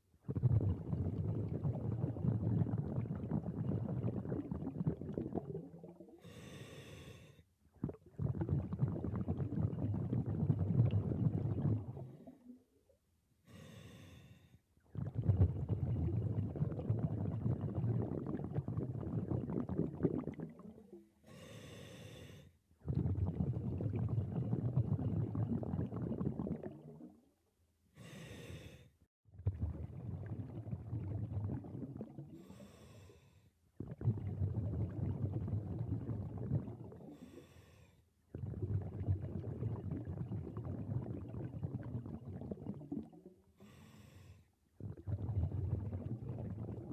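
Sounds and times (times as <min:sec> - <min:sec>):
exhaled bubbles rushing: 0:00.2 - 0:06.2, 0:07.7 - 0:12.6, 0:14.8 - 0:21.0, 0:22.8 - 0:27.3, 0:29.4 - 0:32.4, 0:33.8 - 0:37.2, 0:38.3 - 0:43.5, 0:44.8 - 0:46.9
hissing regulator inhale: 0:06.2 - 0:07.4, 0:13.5 - 0:14.5, 0:21.3 - 0:22.5, 0:28.0 - 0:28.9, 0:32.4 - 0:33.5, 0:43.6 - 0:44.5.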